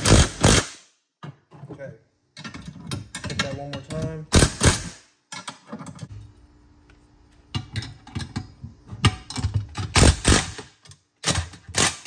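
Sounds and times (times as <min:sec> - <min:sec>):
metal clicks and knocks: 0:02.4 - 0:04.2.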